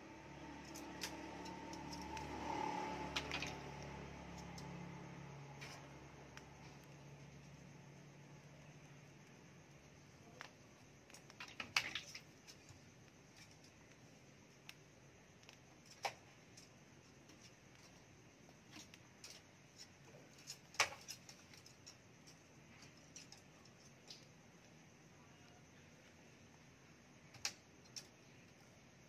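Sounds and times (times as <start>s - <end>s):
low room noise: 0.0s - 29.0s
faint clicks and taps: 9.0s - 24.8s.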